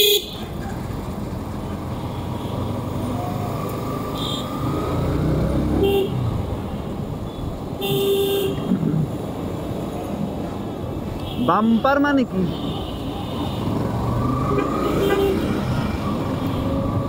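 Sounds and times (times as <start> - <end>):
vehicle horns honking: 0.0 - 0.4, 4.1 - 4.6, 5.8 - 6.2, 7.3 - 8.7, 11.2 - 13.9, 14.5 - 15.6
motorcycle engine and road rumble: 0.0 - 17.0.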